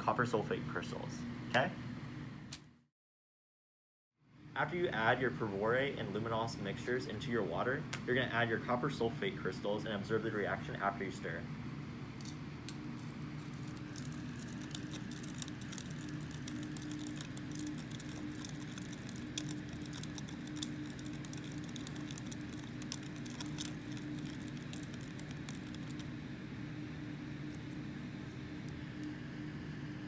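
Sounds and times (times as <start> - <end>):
steady low hum: 4.2 - 30.0
plastic spoon stirring liquid: 12.2 - 26.3.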